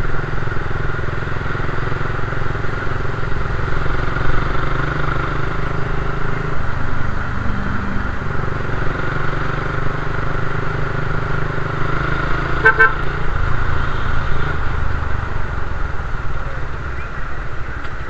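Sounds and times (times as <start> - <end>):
motorcycle engine running: 0.0 - 18.0
vehicle horn beeps: 12.6 - 13.0.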